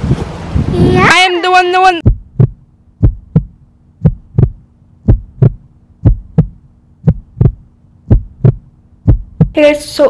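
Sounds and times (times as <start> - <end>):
low steady hum: 0.0 - 10.0
heartbeat thumps: 2.0 - 9.6.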